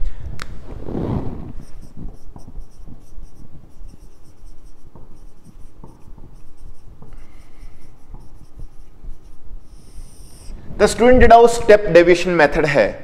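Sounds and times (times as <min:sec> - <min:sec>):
marker squeaking on whiteboard: 0:00.9 - 0:10.6
marker tapping: 0:01.5 - 0:10.5.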